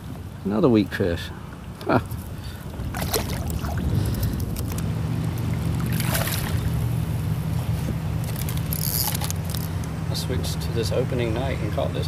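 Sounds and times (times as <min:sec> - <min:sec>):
low motor hum: 0:01.4 - 0:12.0
fish splashing at surface: 0:02.9 - 0:03.9, 0:05.8 - 0:06.7.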